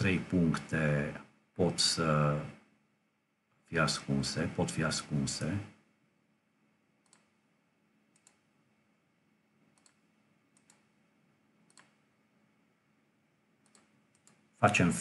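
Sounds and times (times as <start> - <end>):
computer mouse clicks: 7.0 - 7.4, 8.1 - 8.5, 9.7 - 11.0, 11.6 - 12.0, 13.6 - 14.5.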